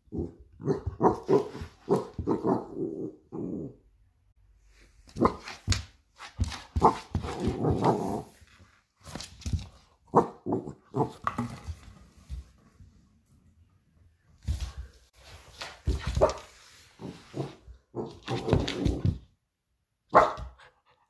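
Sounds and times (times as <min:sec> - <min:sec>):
puppy barking and growling: 0:00.0 - 0:03.8, 0:10.1 - 0:11.4.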